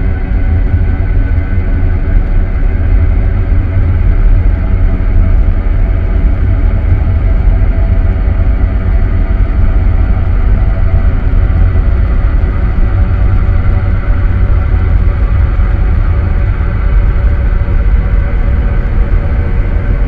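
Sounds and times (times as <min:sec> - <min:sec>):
ambient noise music rumble: 0:00.0 - 0:20.0.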